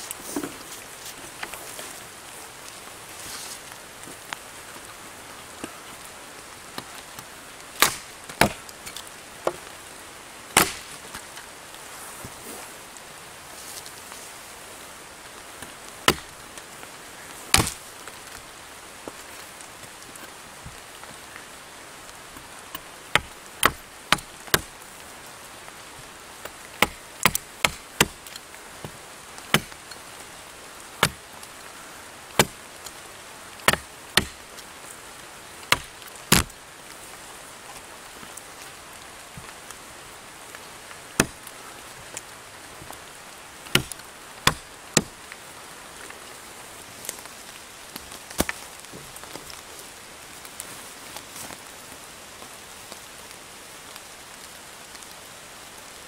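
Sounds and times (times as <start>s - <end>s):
steady hiss: 0.0s - 56.0s
billhook chopping wooden stick: 7.8s - 8.6s, 10.6s - 10.9s, 16.1s - 16.3s, 17.5s - 17.8s, 23.1s - 24.7s, 26.8s - 28.2s, 29.5s - 29.8s, 31.0s - 31.2s, 32.4s - 32.6s, 33.7s - 34.4s, 35.7s - 36.6s, 41.2s - 41.4s, 43.7s - 45.1s.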